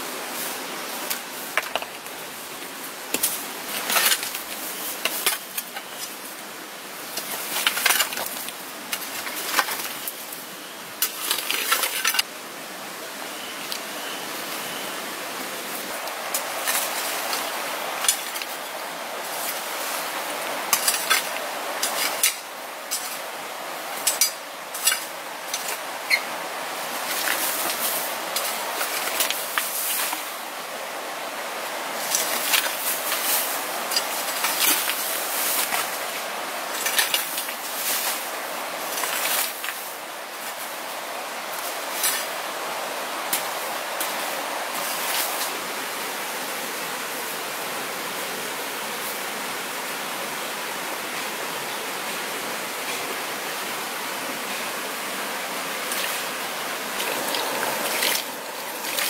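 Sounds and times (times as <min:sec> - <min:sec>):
stream rushing: 0:00.0 - 0:59.0
hand tool scraping hard dirt: 0:56.9 - 0:59.0.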